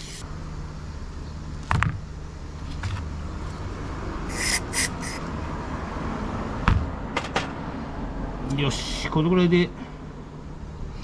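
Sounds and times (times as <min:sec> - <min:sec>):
toothbrush scrubbing metal parts: 0:04.3 - 0:05.2.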